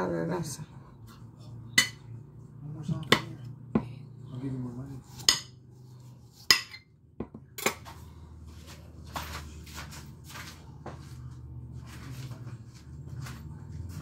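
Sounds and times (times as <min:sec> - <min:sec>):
kitchenware clinking: 0:01.7 - 0:02.2, 0:06.4 - 0:07.8
rustling and scraping: 0:07.8 - 0:14.0.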